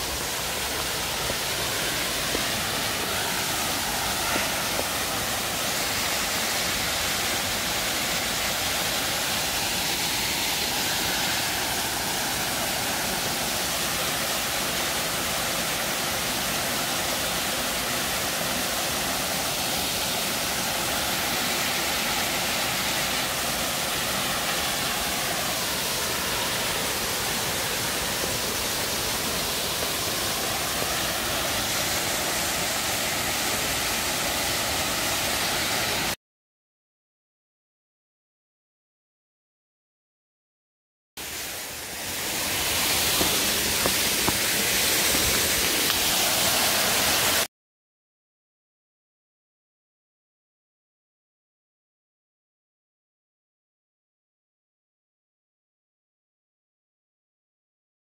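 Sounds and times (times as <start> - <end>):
waterfall rushing: 0.0 - 36.2, 41.2 - 47.5.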